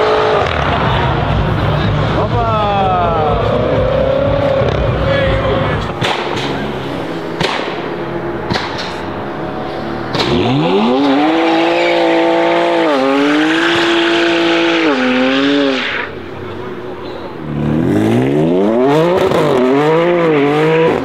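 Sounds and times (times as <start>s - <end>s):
car engine revving: 0.0s - 21.0s
tyres squealing in a burnout: 8.9s - 17.6s.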